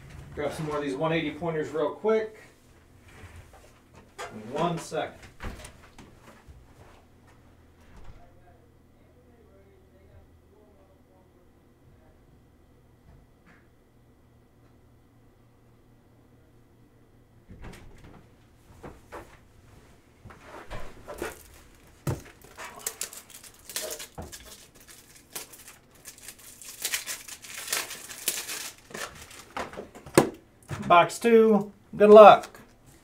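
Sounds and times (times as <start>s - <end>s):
plastic packaging crinkling: 21.1s - 30.2s.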